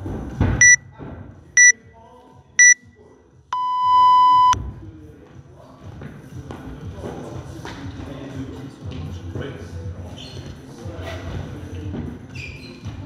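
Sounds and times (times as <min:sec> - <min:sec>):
long low timer beep: 0:02.6 - 0:02.8, 0:03.6 - 0:04.6
short high timer beeps: 0:02.6 - 0:02.8, 0:03.6 - 0:04.6.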